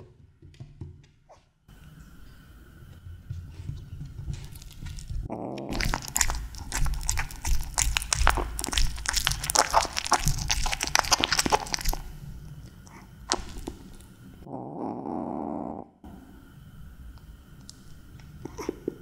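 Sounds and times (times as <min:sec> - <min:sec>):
kitten chewing: 0:04.0 - 0:14.2.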